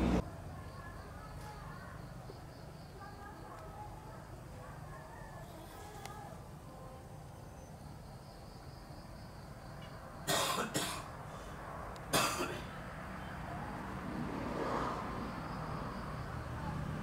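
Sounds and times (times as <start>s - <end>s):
person coughing: 10.3s - 11.1s, 12.2s - 12.7s.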